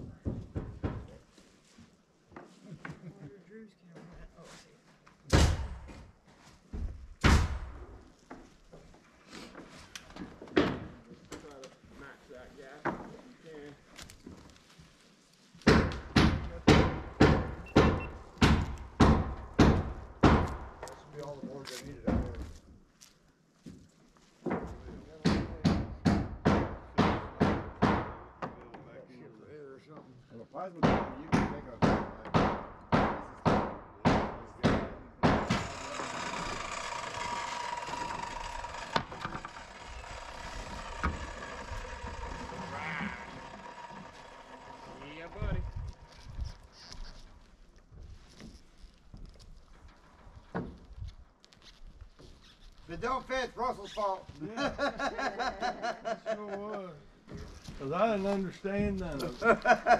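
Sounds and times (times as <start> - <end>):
hammer blows: 31.0 - 46.7.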